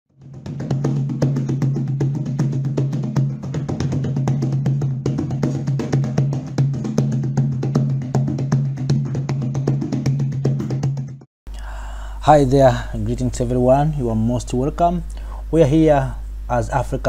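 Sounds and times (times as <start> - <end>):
quick percussion beat: 0.2 - 11.3.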